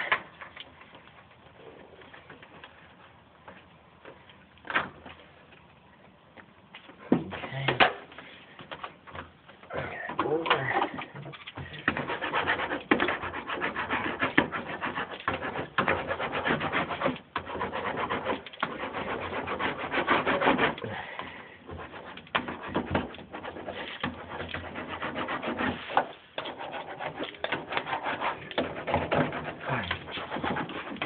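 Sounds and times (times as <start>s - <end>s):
hand rubbing mat with rasping scrape: 10.3s - 31.0s.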